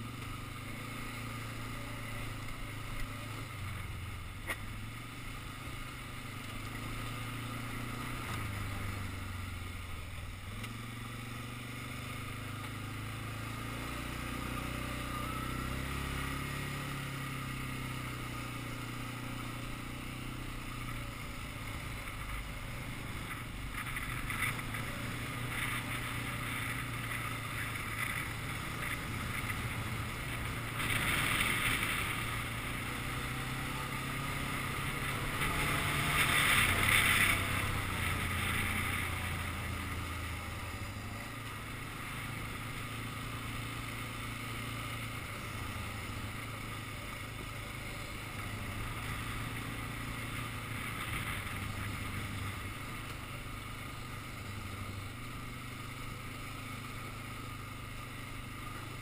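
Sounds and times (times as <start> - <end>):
quad engine running: 0.0 - 59.0.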